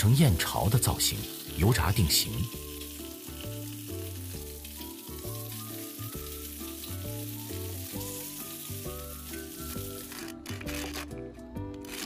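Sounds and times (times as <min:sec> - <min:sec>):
noodles sizzling in hot oil: 0:00.0 - 0:11.1.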